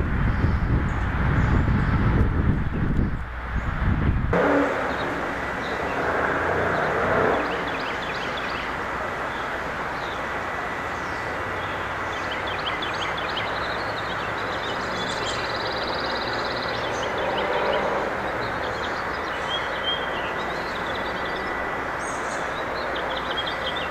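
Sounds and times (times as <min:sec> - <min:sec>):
bird trill: 0:04.4 - 0:10.2
lawn mower engine running: 0:04.4 - 0:14.3
small birds chirping: 0:04.4 - 0:23.9.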